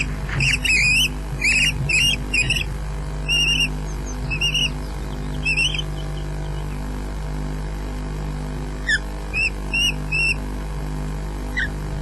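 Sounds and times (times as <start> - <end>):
ospreys chirping: 0.0 - 6.9, 8.8 - 10.5, 11.5 - 11.8
steady low hum: 0.0 - 12.0.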